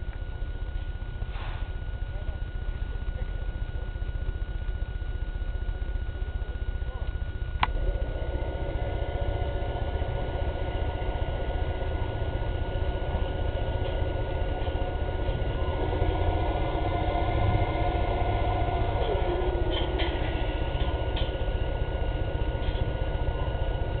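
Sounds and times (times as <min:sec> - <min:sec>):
diesel boat engine under load: 0:00.0 - 0:24.0.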